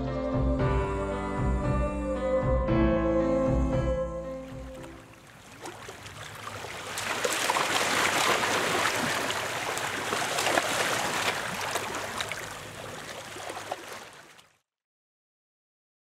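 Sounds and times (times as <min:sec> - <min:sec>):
small waves lapping: 0:04.4 - 0:14.6.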